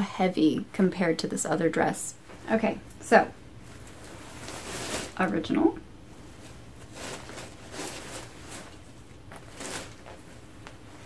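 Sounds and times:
tulle gowns rustling: 0.8 - 11.0.

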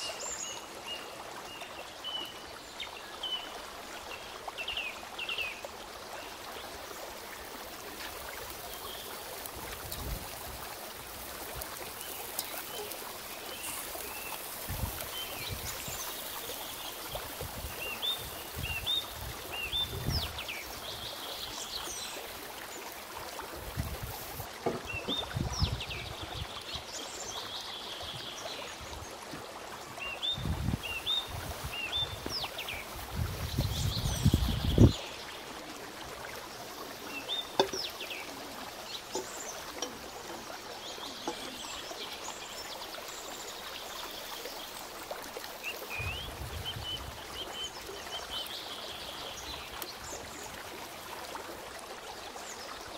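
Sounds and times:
steady outdoor hiss: 0.0 - 52.9
small birds chirping: 7.0 - 23.0.

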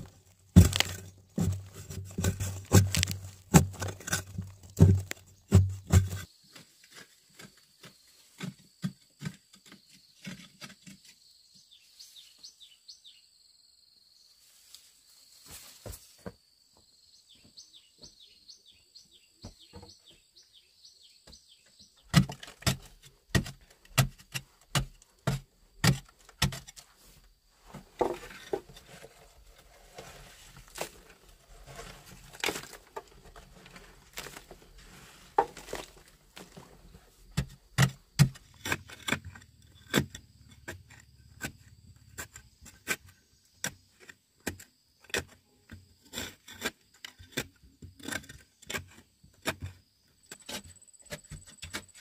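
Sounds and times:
digging tool striking hard earth: 0.0 - 6.3, 22.1 - 26.8, 30.2 - 40.8
scraping and soil falling: 0.0 - 11.2, 14.5 - 16.4, 22.0 - 52.0
insects chirping: 6.1 - 22.1, 27.2 - 52.0.

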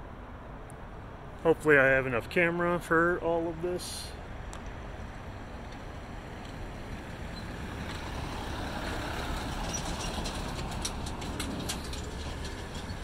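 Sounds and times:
pickup truck driving past: 4.8 - 13.0
trailer clanking: 5.0 - 13.0.

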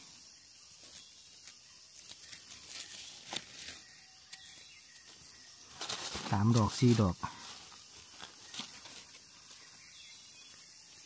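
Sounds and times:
dry leaves rustling: 0.8 - 10.3
twigs snapping: 2.0 - 4.6, 8.1 - 9.2.

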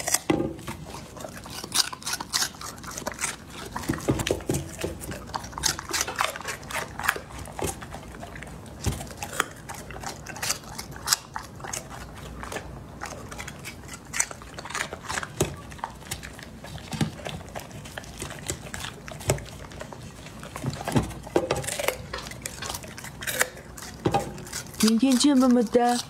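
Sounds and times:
dog chewing food: 0.0 - 26.0
dog licking a plate: 0.0 - 26.0.

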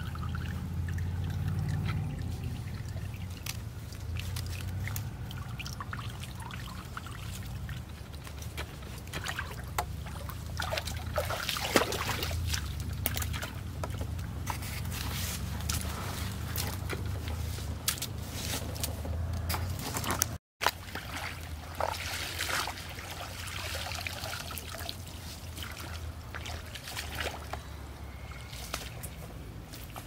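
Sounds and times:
water trickling and dripping: 0.0 - 14.6, 20.6 - 30.0.

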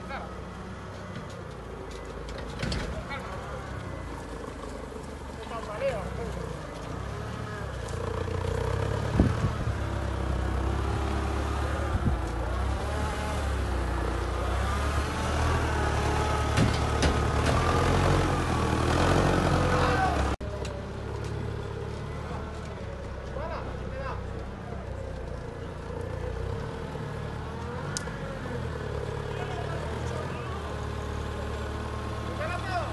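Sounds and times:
forklift engine running: 0.0 - 32.9
sharp knocks and clunks: 16.5 - 17.9.

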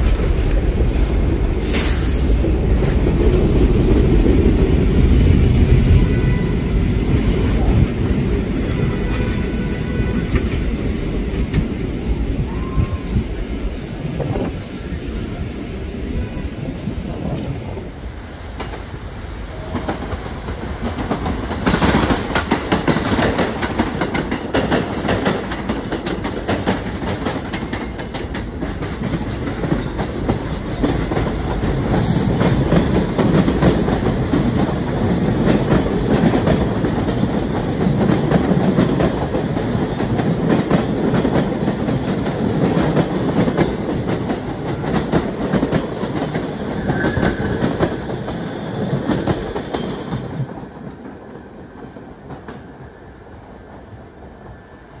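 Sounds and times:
train wheels clattering over rails: 19.6 - 52.8.

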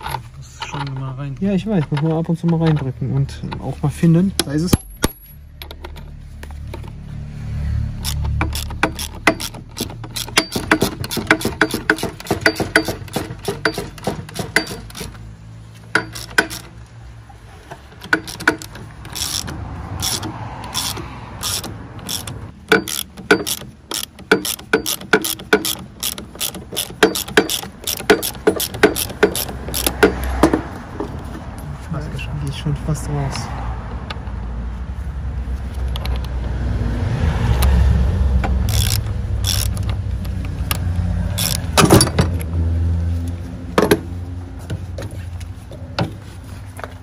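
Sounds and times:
metallic clicking of a hand tool: 8.0 - 15.2, 15.9 - 16.8, 17.7 - 30.5, 38.4 - 42.5.

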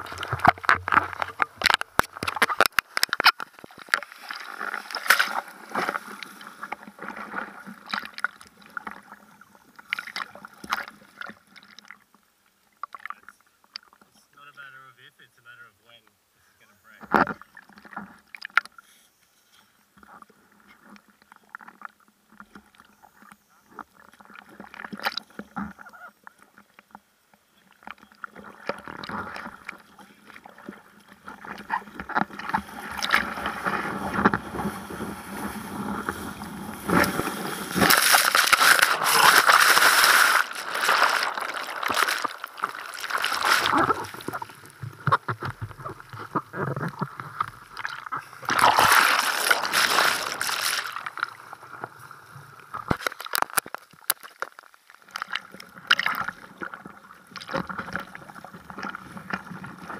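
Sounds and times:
water lapping against a board: 27.8 - 52.0
surging whitewater: 32.4 - 44.6, 47.7 - 51.2.

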